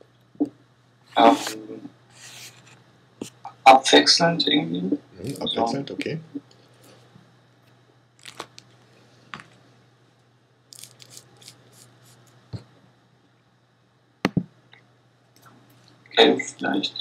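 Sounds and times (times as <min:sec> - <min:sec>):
low steady hum: 0:00.0 - 0:17.0
paper being handled: 0:01.2 - 0:02.8, 0:10.8 - 0:12.3.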